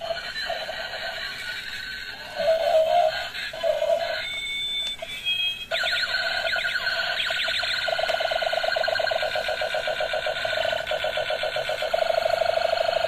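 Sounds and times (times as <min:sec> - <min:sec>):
tinny electronic toy music: 0:00.0 - 0:13.0
fast pulsing alarm sound: 0:05.4 - 0:13.0
falling siren-like sweeps: 0:05.7 - 0:11.4.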